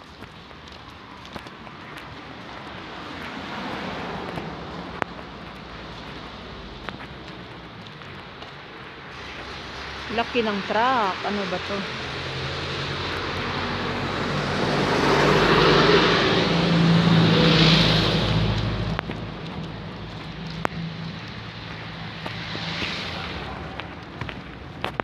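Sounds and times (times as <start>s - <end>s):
large truck driving past: 11.6s - 24.2s.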